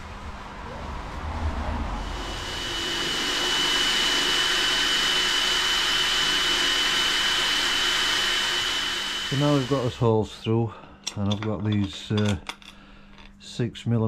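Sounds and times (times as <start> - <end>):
cordless drill drilling metal: 2.0 - 10.1.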